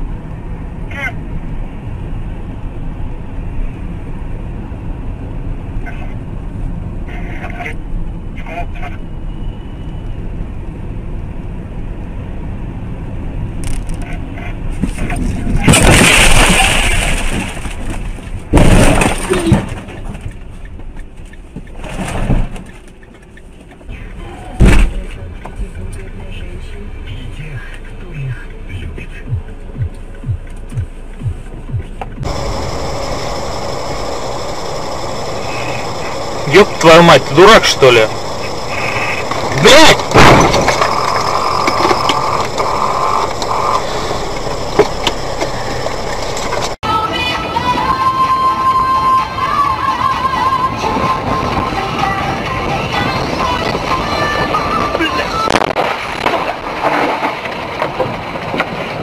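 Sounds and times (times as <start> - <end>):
vehicle road noise: 0.0 - 59.0
car crash: 14.7 - 20.4, 21.8 - 22.6, 24.6 - 25.2, 32.2 - 46.8, 54.0 - 59.0
broken whine: 29.2 - 48.0.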